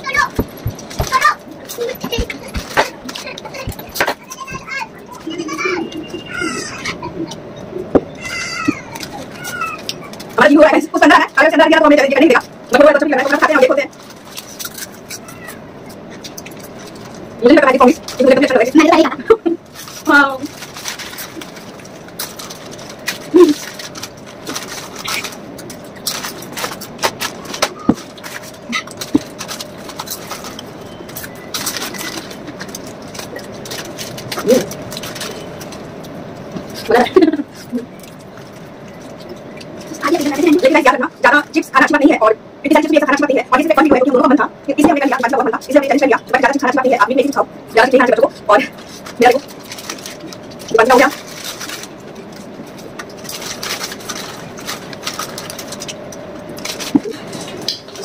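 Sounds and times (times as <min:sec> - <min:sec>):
steady low hum: 0:00.0 - 0:58.0
foil chip packet crinkling: 0:08.2 - 0:41.6, 0:45.0 - 0:58.0
chips crunching while chewing: 0:19.7 - 0:36.9, 0:48.7 - 0:58.0.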